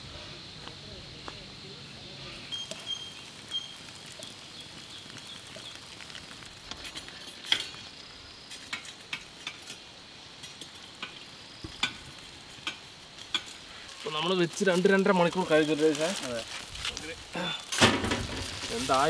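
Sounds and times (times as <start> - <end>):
meat sizzling on a grill: 1.7 - 19.0
crackling pops: 2.5 - 19.0.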